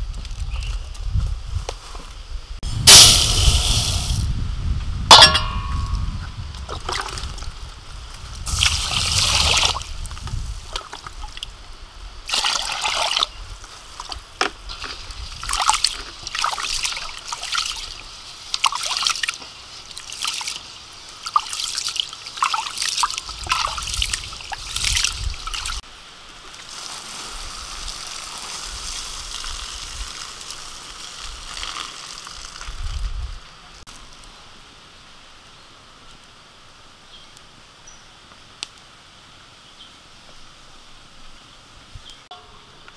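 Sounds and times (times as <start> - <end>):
rice sloshing in water: 12.3 - 13.3
water trickling: 14.0 - 25.8.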